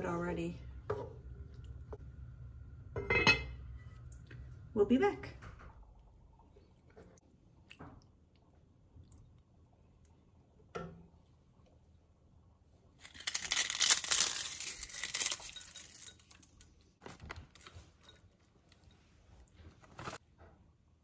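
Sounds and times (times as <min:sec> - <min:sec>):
tortilla chips crunching: 0:13.0 - 0:16.6.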